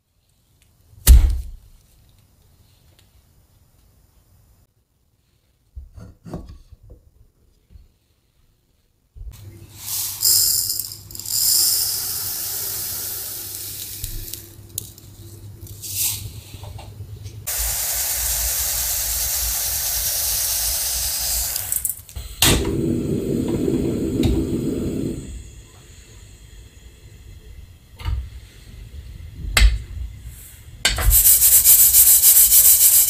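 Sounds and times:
seeds pouring into a pan: 9.7 - 16.3
gas burner flame rushing: 17.5 - 27.1.

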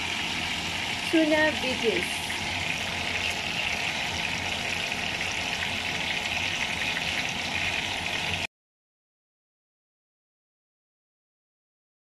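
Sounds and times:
food sizzling in a frying pan: 0.0 - 8.5.

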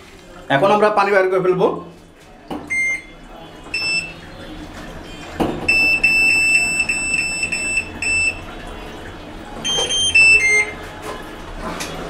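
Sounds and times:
high buzzer beeps: 2.7 - 4.2, 5.7 - 8.4, 9.6 - 10.8.

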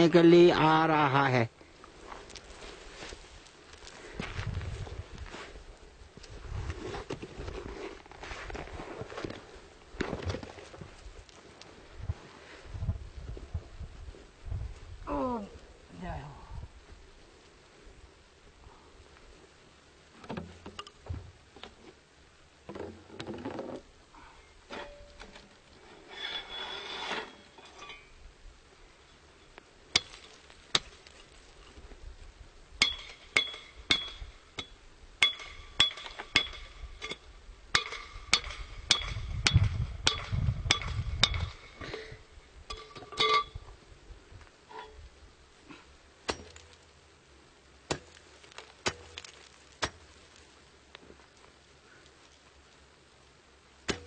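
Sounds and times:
metal bar striking ice: 32.8 - 41.7, 42.7 - 43.6, 46.3 - 46.8.

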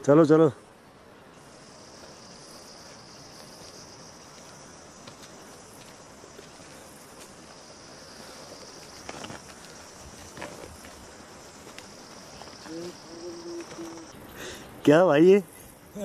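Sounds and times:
insects droning: 0.0 - 16.0
footsteps knocks and scuffs: 8.9 - 12.7.

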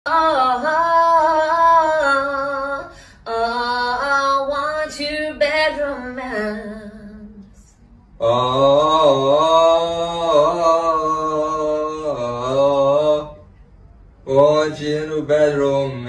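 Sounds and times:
woman singing unaccompanied: 0.1 - 7.7.

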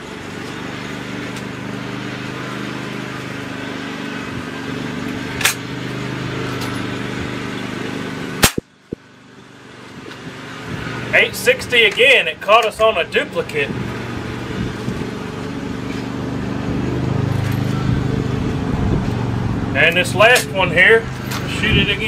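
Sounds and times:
air rifle shot: 8.4 - 8.7.

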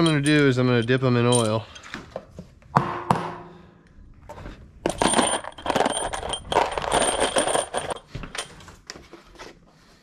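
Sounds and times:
metal bolts rattling in tub: 0.0 - 1.9, 4.8 - 8.7.

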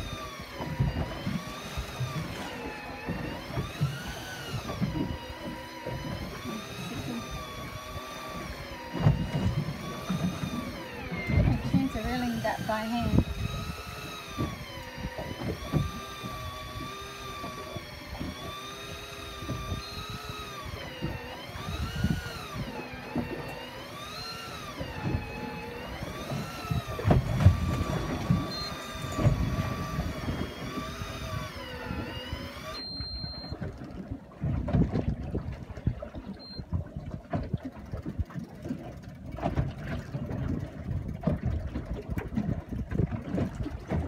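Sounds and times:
electric fishing reel whine: 0.0 - 34.2.

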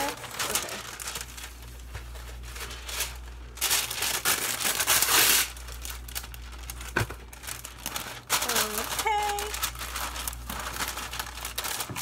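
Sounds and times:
wax paper crinkling: 0.0 - 12.0.

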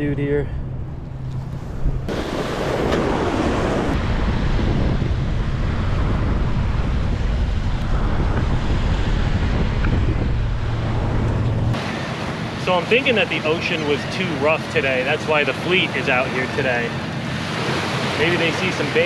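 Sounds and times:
wind buffeting microphone: 0.0 - 13.2
small waves breaking: 1.1 - 19.0.

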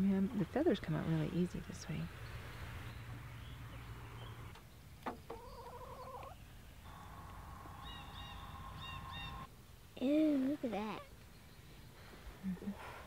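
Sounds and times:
faint bird calls: 5.3 - 9.5.

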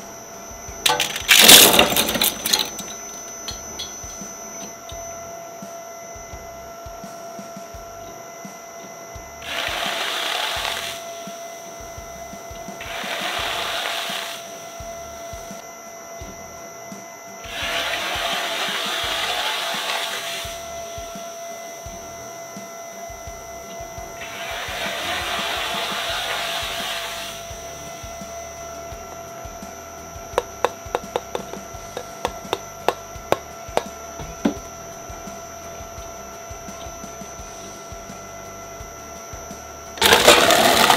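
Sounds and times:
shredder whining and humming: 0.0 - 40.9
hissing bursts: 9.4 - 11.8, 12.7 - 15.5, 17.4 - 21.6, 24.2 - 39.1.

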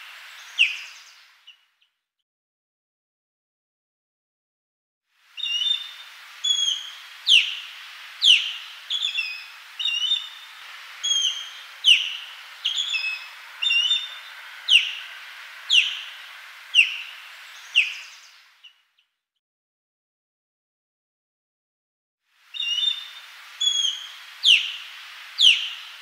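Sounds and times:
osprey whistled calls: 0.0 - 1.6, 5.4 - 18.8, 22.5 - 26.0.

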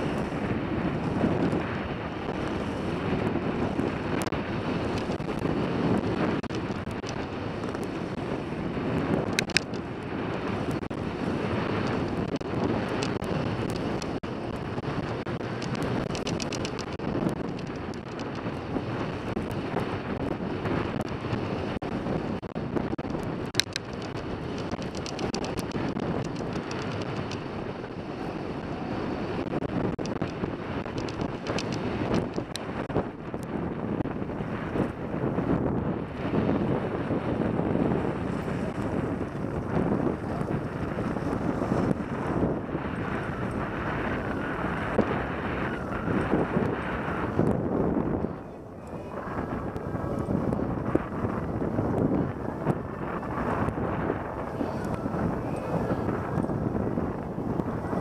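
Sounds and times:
wind buffeting microphone: 0.0 - 58.0
sharp clicks: 9.3 - 9.8, 15.0 - 18.4, 23.0 - 27.5, 30.0 - 32.7.

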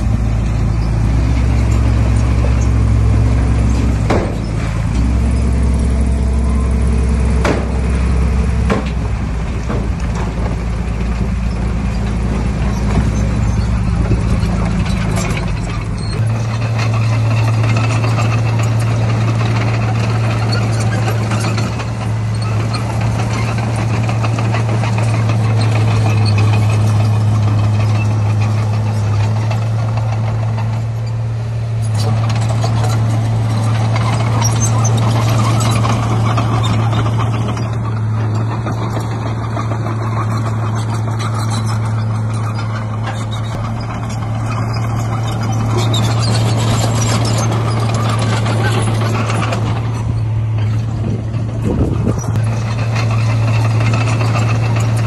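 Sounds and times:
heavy machine diesel engines: 0.0 - 55.0
sharp knocks: 3.9 - 4.6, 7.4 - 7.9, 8.6 - 9.1.

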